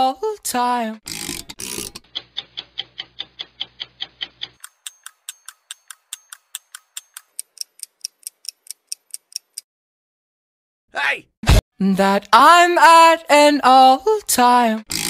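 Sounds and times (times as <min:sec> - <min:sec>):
clock ticking: 0:01.1 - 0:09.6.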